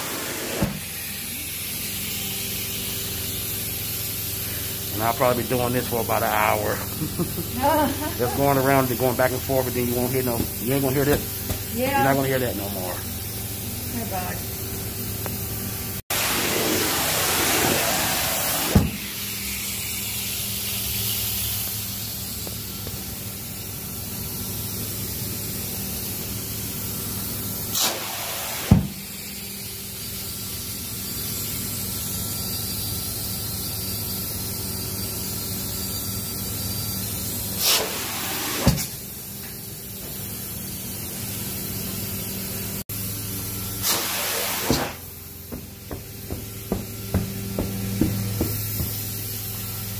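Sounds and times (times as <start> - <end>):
vacuum sucking water hissing rush: 0.0 - 0.9, 15.9 - 22.0, 43.8 - 49.7
low motor hum: 0.6 - 16.0, 45.0 - 49.9
sharp knocks: 45.5 - 49.1.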